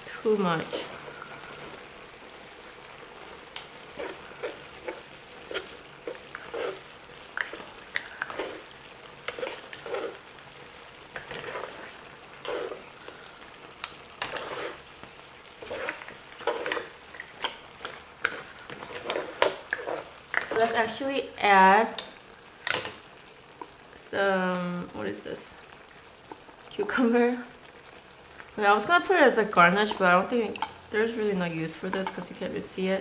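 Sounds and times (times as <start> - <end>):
noodles sizzling in a hot pan: 0.0 - 33.0
utensils scraping a pan: 3.6 - 10.2, 11.2 - 12.9, 14.2 - 14.8, 15.6 - 20.8.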